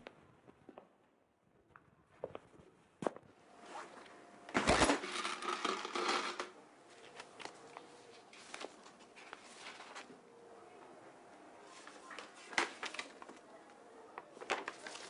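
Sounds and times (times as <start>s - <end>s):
paper envelope rustling: 4.6s - 10.2s, 11.7s - 13.5s, 14.2s - 15.0s.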